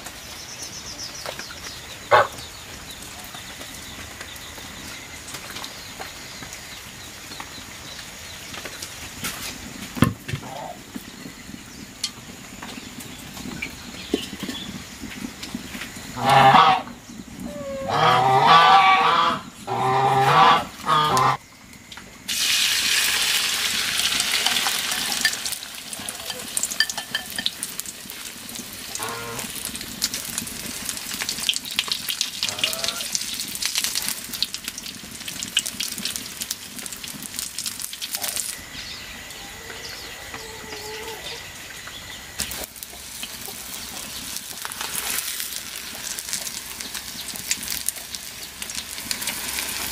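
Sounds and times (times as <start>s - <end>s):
wood fire crackling: 0.0s - 16.3s, 20.7s - 39.4s, 41.5s - 49.9s
loud farm animal calls: 2.1s - 2.4s, 10.4s - 10.8s, 16.1s - 21.4s, 28.8s - 29.7s, 32.4s - 33.2s, 38.1s - 42.6s
egg sizzling in hot oil: 22.2s - 38.6s, 42.4s - 49.9s.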